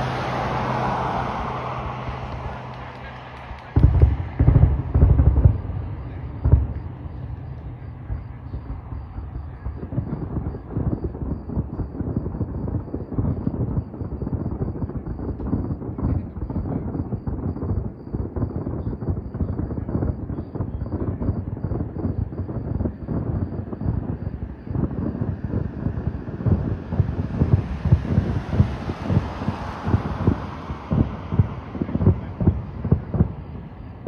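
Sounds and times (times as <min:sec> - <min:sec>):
distant fireworks booming: 0:00.0 - 0:34.0.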